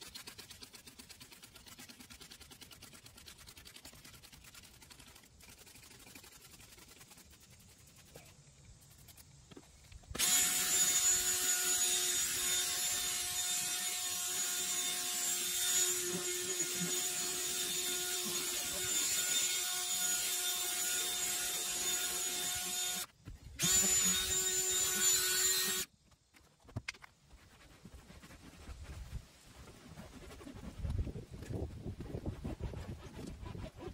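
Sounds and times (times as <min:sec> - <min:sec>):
brush scrubbing hiss: 0:00.0 - 0:19.5, 0:26.6 - 0:33.9
cordless drill motor whine: 0:10.2 - 0:25.9.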